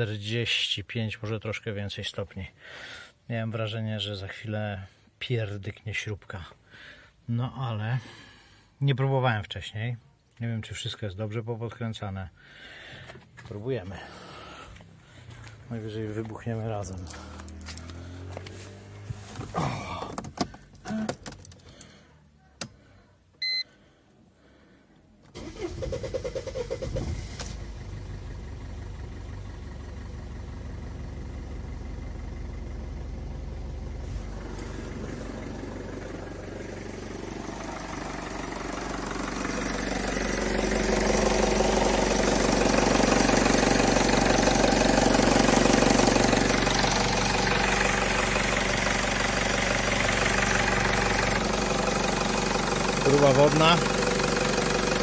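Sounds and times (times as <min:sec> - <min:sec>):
diesel engine idling: 0:12.2 - 0:20.9, 0:25.4 - 0:55.0
short beep: 0:23.4 - 0:23.7
engine starter turning: 0:25.3 - 0:28.0.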